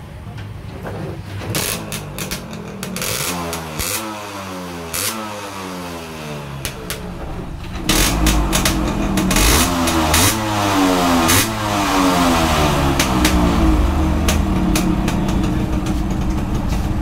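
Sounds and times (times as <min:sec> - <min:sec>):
two-stroke motorcycle engine revving: 0:01.4 - 0:17.0.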